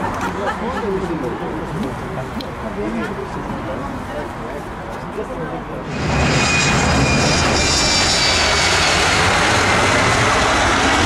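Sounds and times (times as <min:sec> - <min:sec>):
jet engine roar with fan whine: 0:05.8 - 0:11.0.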